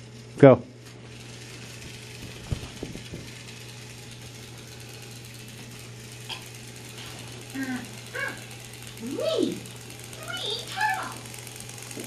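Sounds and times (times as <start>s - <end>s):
toy train motor humming: 0.0s - 12.0s.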